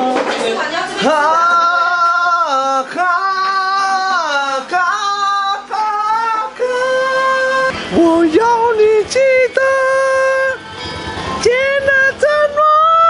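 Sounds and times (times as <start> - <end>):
singer breathing: 7.7 - 8.0.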